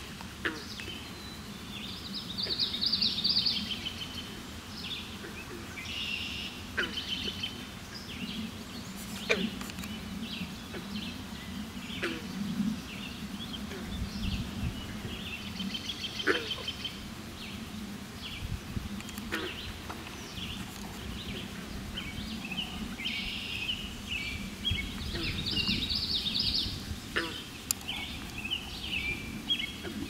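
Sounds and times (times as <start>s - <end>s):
songbirds singing: 0.0s - 30.0s
sharp clicks: 19.0s - 20.1s.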